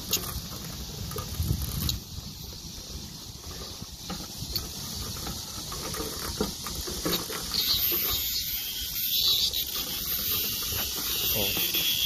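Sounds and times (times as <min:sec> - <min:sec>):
cicadas buzzing: 0:00.0 - 0:12.0.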